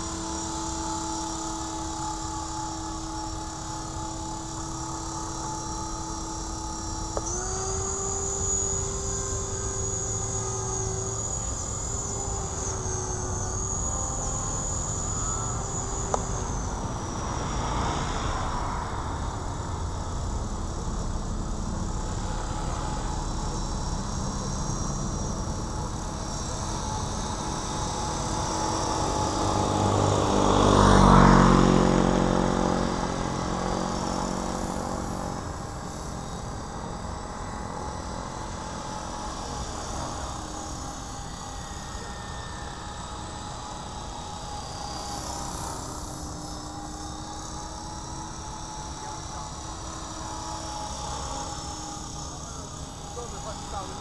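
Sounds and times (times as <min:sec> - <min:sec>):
rc helicopter rotor and motor: 0:00.0 - 0:54.0.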